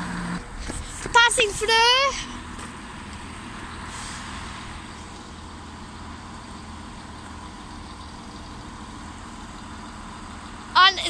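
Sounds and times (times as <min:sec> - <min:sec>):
diesel train engine rumbling: 0:00.0 - 0:11.0
short hiss: 0:03.9 - 0:04.7.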